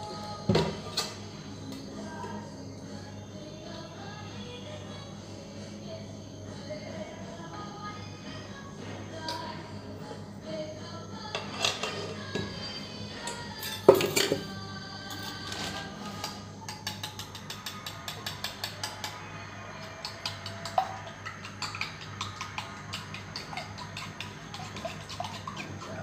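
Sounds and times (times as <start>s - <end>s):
egg beaten in glass bowl: 16.8s - 26.0s.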